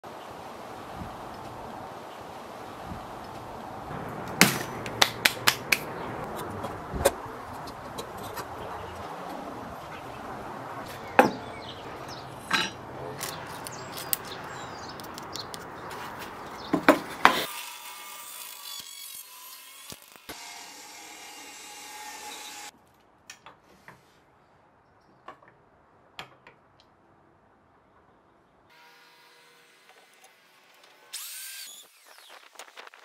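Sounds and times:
sharp knocks: 3.9 - 5.9
wood rubbing and scraping: 5.6 - 17.4.

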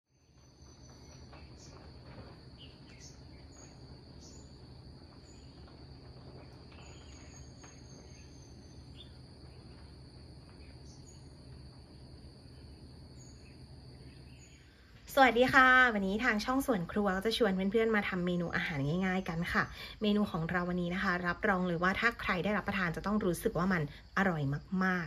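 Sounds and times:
high insect trill: 0.1 - 25.0
low hum: 0.1 - 25.0
bird chirps: 0.2 - 11.6.

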